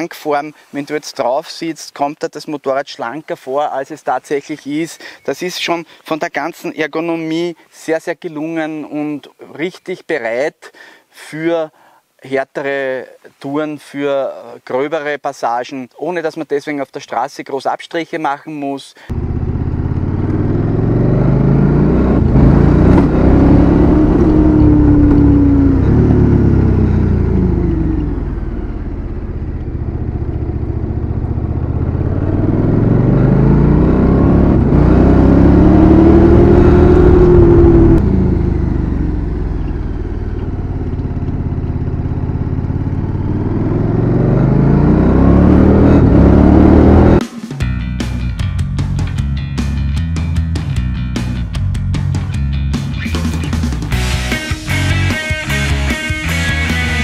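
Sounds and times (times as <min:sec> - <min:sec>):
motorcycle engine pulling hard: 0:19.2 - 0:47.2.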